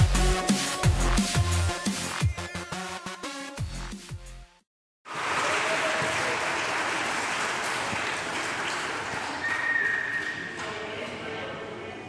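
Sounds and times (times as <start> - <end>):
children cheering and clapping: 5.1 - 10.4
whistle blast: 9.4 - 10.5.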